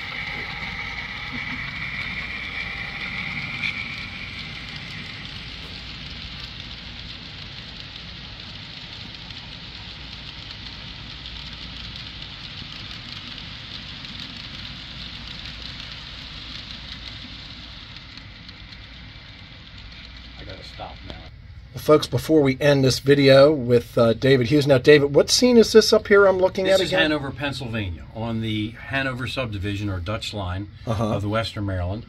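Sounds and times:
high steady tone: 0:00.0 - 0:07.0
model train wheels rolling on rail: 0:00.0 - 0:32.0.

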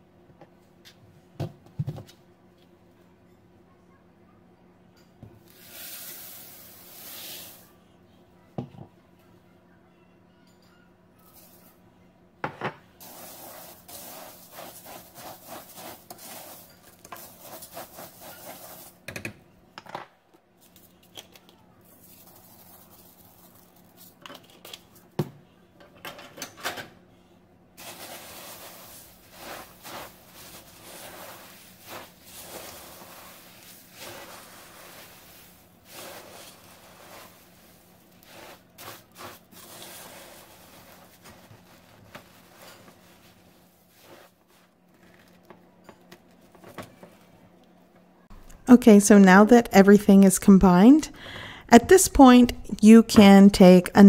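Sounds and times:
spatula stirring cereal: 0:13.0 - 0:19.1, 0:21.8 - 0:24.2, 0:27.8 - 0:44.8.

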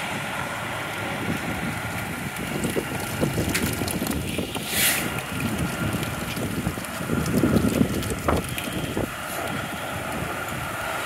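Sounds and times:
diesel engine running: 0:00.0 - 0:11.0
wind buffeting microphone: 0:00.0 - 0:11.0
short hiss: 0:04.6 - 0:05.1.

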